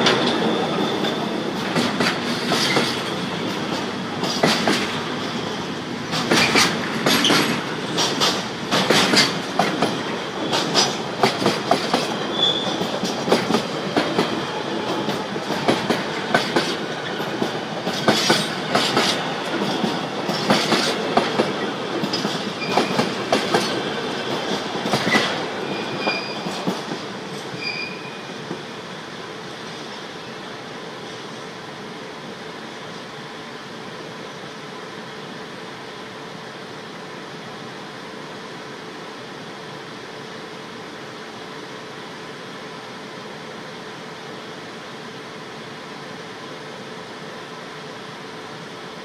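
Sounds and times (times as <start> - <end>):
train wheels clattering over joints: 0.0 - 5.1, 6.1 - 27.5
high-pitched wheel squeals: 12.2 - 12.8, 25.7 - 26.5, 27.5 - 28.3.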